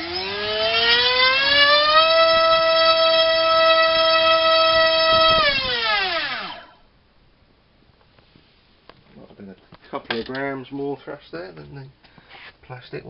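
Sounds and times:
motor and propeller whine: 0.0 - 6.8.

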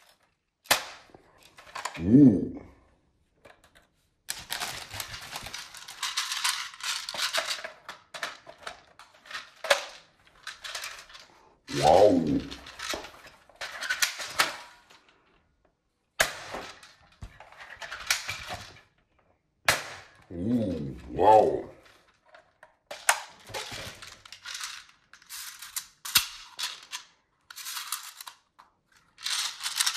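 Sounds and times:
plastic toy parts clicking and rattling: 0.0 - 2.0, 3.4 - 15.4, 16.2 - 19.1, 19.9 - 29.9
short voice exclamation: 2.0 - 2.7, 11.7 - 12.6, 20.3 - 21.8.

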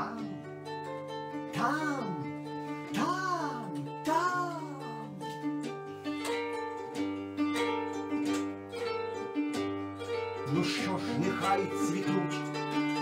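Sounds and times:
person singing: 0.0 - 6.6, 10.0 - 13.0
plucked lute strings: 0.0 - 13.0.

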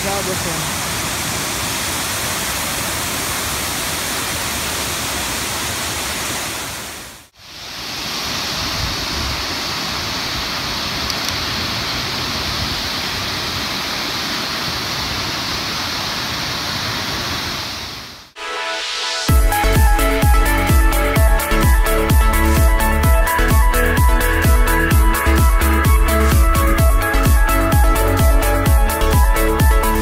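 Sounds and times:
waterfall rushing: 0.0 - 21.8.

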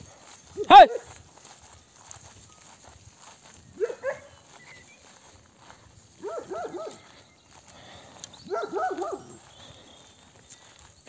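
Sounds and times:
dog barking: 0.7 - 1.2, 3.8 - 4.4, 6.2 - 7.1, 8.5 - 9.4.

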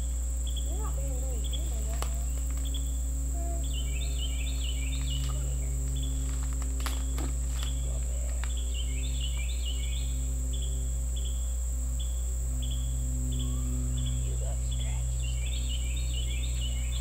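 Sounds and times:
insect buzzing: 0.0 - 17.0
insect chirps: 0.0 - 17.0
low hum: 0.0 - 17.0
faint clicks: 1.6 - 2.8.

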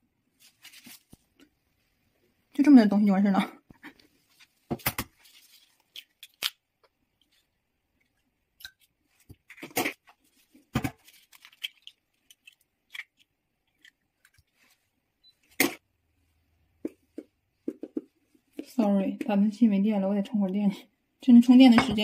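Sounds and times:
soft handling sounds: 0.3 - 2.4, 3.7 - 6.3, 13.7 - 15.6.

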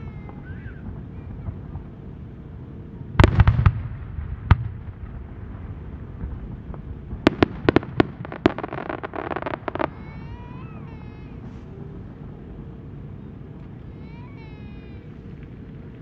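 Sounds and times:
firework shells bursting: 3.2 - 5.2, 6.2 - 11.7
sharp crackling reports: 5.5 - 16.0.

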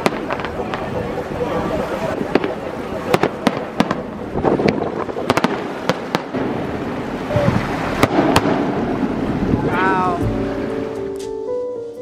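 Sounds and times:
fireworks bursting bangs: 0.0 - 9.6.

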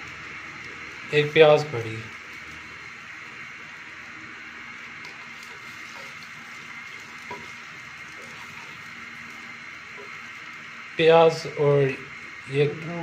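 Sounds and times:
onions sizzling in hot oil: 1.7 - 11.0.

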